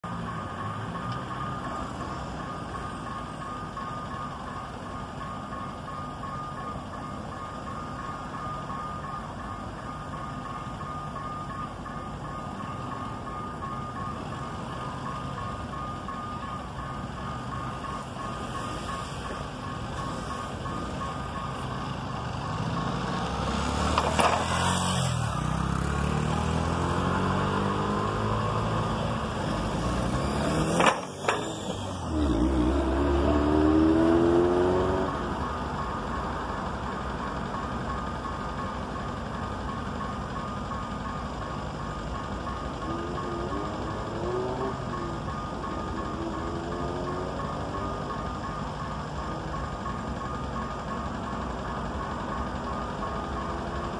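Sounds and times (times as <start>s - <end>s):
locomotive diesel engine drone: 0.0s - 53.9s.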